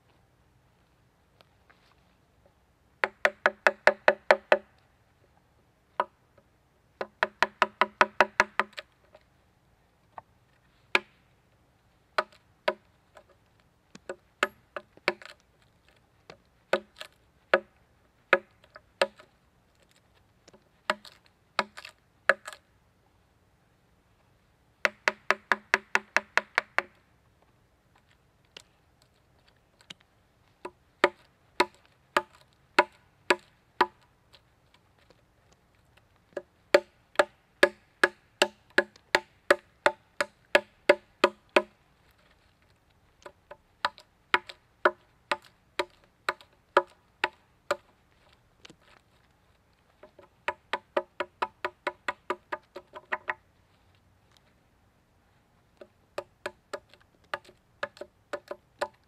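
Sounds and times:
hatchet chopping a log: 3.0s - 4.7s, 7.0s - 8.8s, 10.9s - 11.2s, 12.2s - 13.3s, 14.0s - 15.4s, 16.7s - 17.7s, 18.3s - 19.3s, 20.9s - 22.6s, 24.8s - 27.0s, 30.6s - 34.0s, 36.3s - 41.8s, 43.2s - 47.9s, 50.0s - 53.4s, 55.8s - 59.0s.

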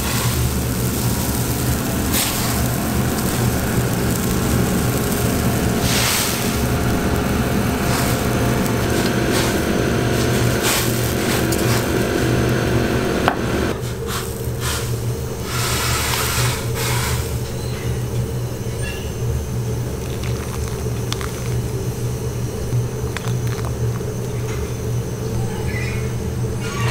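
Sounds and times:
soup boiling: 0.0s - 17.3s, 19.8s - 24.6s
hissing and splashing: 0.0s - 17.4s
gas burner roaring: 0.0s - 26.9s.

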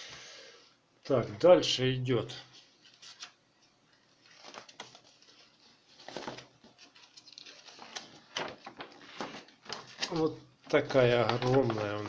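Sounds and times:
paper rustling and crinkling: 2.5s - 12.0s.

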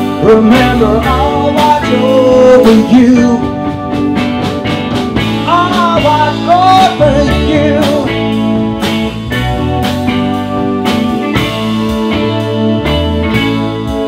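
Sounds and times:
live rock band playing: 0.0s - 14.0s
pitch-bending guitar melody: 0.0s - 14.0s
drum strokes: 1.6s - 14.0s.

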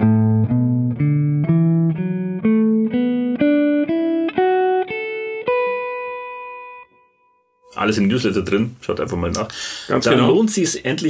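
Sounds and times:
clean electric guitar notes: 0.0s - 7.5s.

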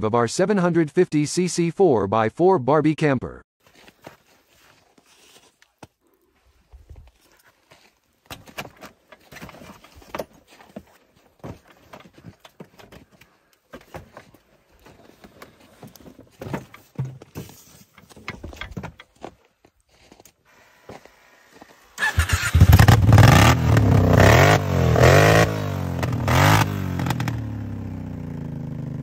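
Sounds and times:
footsteps crunching in snow: 3.6s - 8.3s, 14.0s - 16.0s, 19.1s - 21.9s
plastic knocks and rattles: 16.0s - 19.2s.

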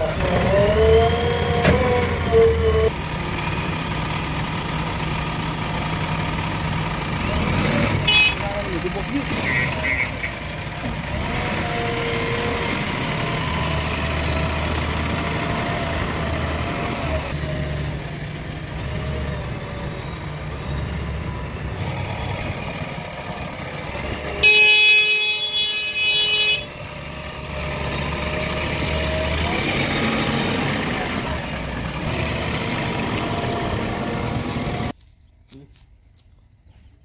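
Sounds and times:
diesel engine running: 0.0s - 35.0s
vehicle horn: 8.0s - 8.6s, 9.4s - 10.5s, 24.3s - 26.8s.

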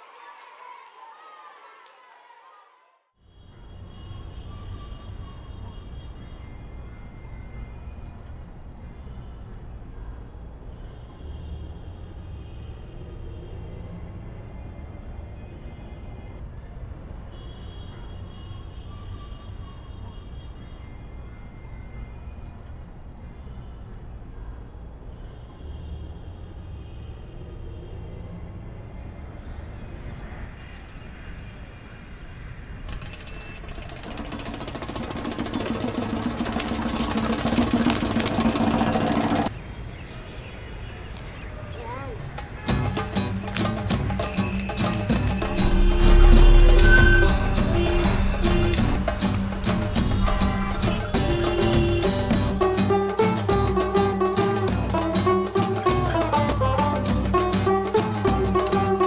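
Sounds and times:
short high chirps: 44.2s - 52.3s
steady low rumble: 45.1s - 52.6s.

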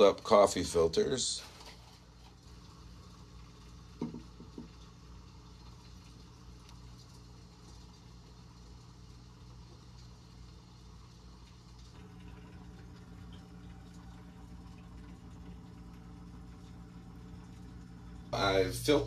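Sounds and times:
low electrical hum: 0.0s - 19.0s
glass dish knocks: 4.0s - 4.7s.

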